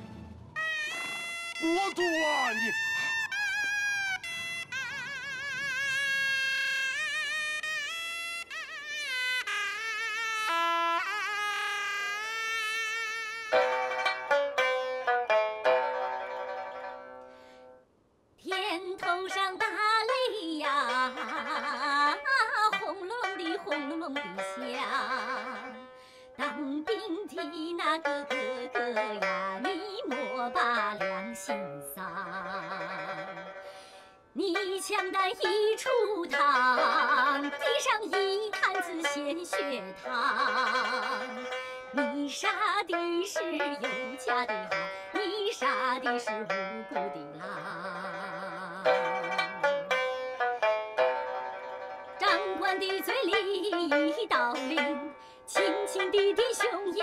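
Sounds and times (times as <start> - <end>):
plucked string instrument: 0.0 - 57.0
person singing with sliding pitch: 18.5 - 25.8.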